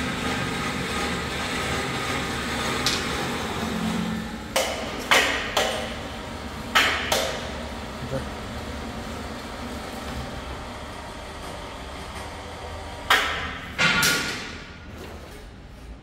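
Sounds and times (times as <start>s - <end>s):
sharp metallic knocks: 4.5s - 6.0s, 6.7s - 7.5s.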